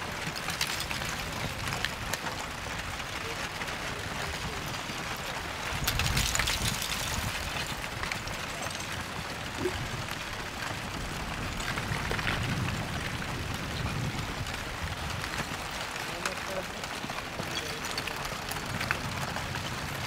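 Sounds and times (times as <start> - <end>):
lava crust crackling and clinking: 0.0 - 20.0.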